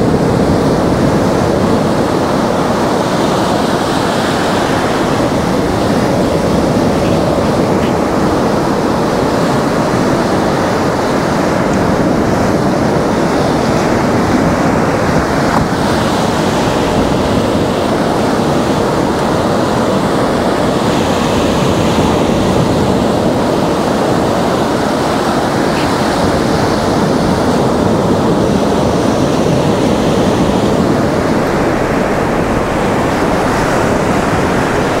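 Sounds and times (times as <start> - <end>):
waves breaking on sandy beach: 0.0 - 35.0.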